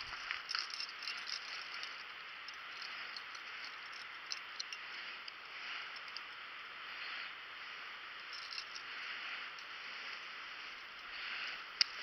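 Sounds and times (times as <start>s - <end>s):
handling clicks and rustles: 0.0s - 6.4s, 8.3s - 11.1s.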